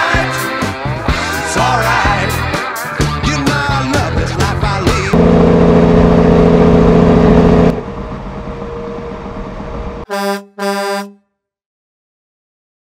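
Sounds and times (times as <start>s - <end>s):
truck engine: 0.5s - 10.1s
road noise: 2.9s - 10.1s
short horn toots: 10.1s - 11.3s
truck air horn blast: 10.1s - 11.3s.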